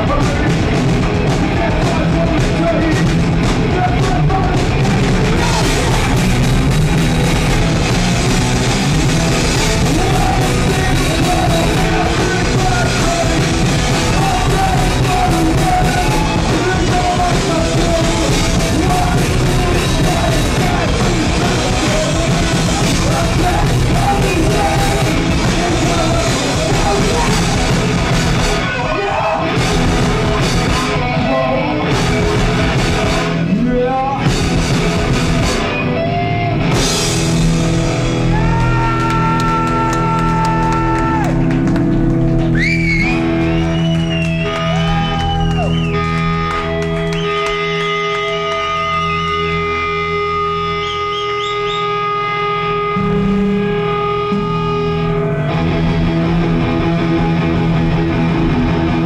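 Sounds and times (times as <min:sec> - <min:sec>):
bass: 0:00.0 - 0:59.0
distorted electric guitars: 0:00.0 - 0:59.0
drums: 0:00.0 - 0:59.0
person yelling vocals: 0:38.3 - 0:41.4.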